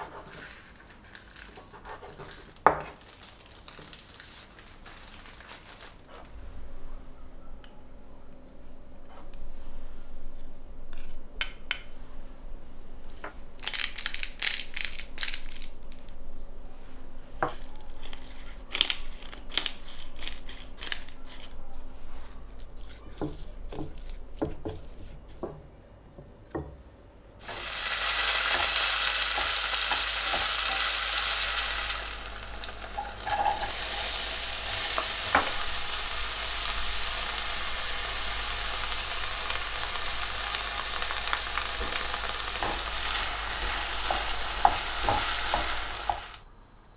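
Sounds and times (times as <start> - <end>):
chicken sizzling in a pan: 27.4 - 46.4.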